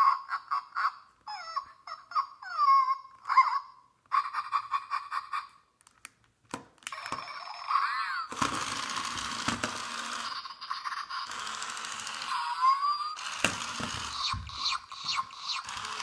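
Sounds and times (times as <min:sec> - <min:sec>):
electronic puppy yips and whines: 0:12.3 - 0:16.0.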